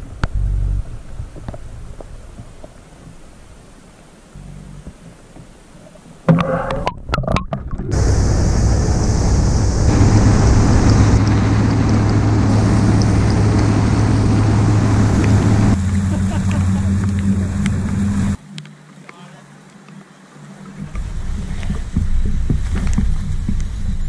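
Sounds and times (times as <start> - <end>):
rushing wind and water: 0.0 - 24.0
outboard motor drone: 7.9 - 18.6.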